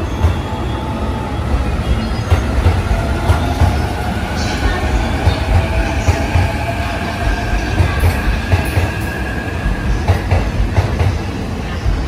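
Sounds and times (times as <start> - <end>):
wheels rumbling on rail: 0.0 - 12.0.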